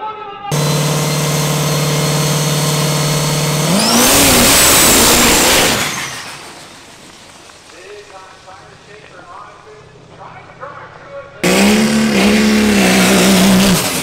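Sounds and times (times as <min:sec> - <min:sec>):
diesel truck engine revving: 0:00.5 - 0:07.0, 0:11.4 - 0:14.0.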